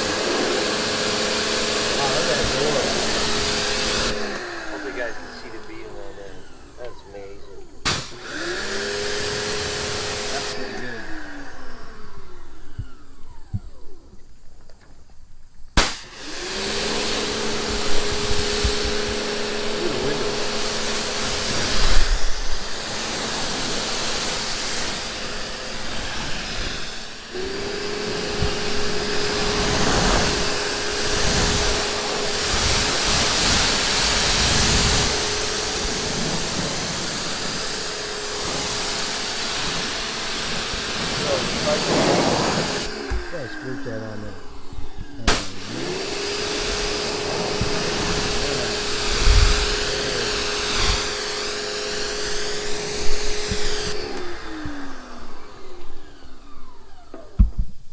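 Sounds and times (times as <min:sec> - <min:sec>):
water spray hissing: 0:00.0 - 0:04.8, 0:07.8 - 0:10.6, 0:15.8 - 0:43.3, 0:45.2 - 0:54.0
pressure washer motor humming: 0:00.0 - 0:57.9.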